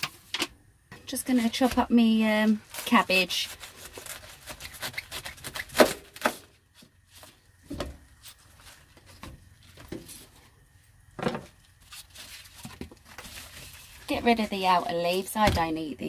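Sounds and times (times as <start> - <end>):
cabbage leaves crunching and rustling: 1.2 - 5.8
knife cutting cabbage: 1.3 - 6.4.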